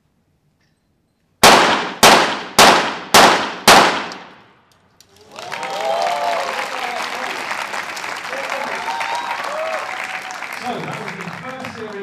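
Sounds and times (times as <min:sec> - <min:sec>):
pistol shots with echo: 0:01.4 - 0:04.5
applause and cheering: 0:05.0 - 0:12.0.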